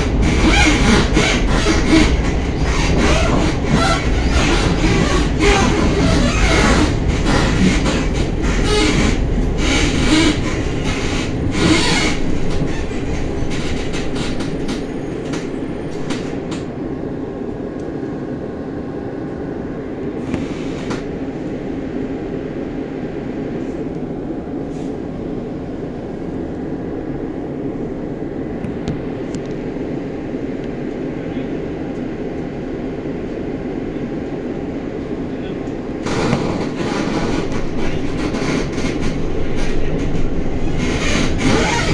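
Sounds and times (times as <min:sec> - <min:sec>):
tram wheels clattering over rails: 0:00.0 - 0:16.8, 0:35.3 - 0:41.9.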